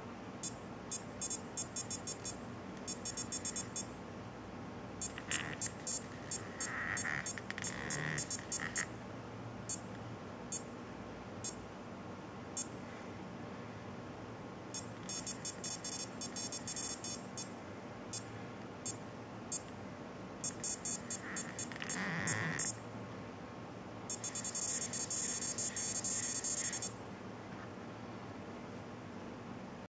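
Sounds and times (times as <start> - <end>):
short steady beep: 0.4 - 3.9, 5.0 - 6.4, 14.8 - 17.5, 24.1 - 26.9.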